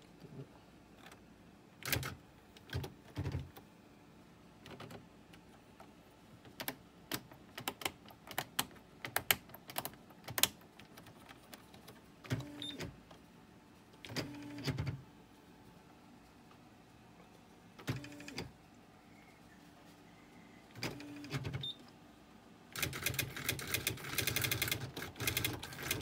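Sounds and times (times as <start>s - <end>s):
typewriter print clacks: 22.8s - 26.0s.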